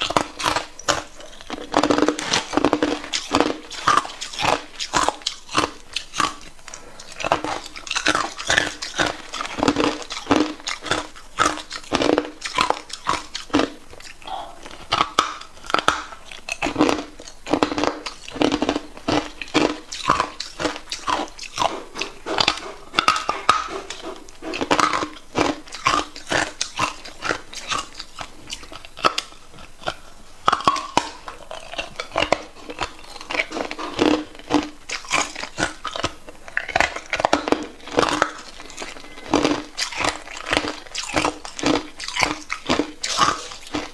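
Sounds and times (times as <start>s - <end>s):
ice being chewed with crunches: 0.0s - 43.9s.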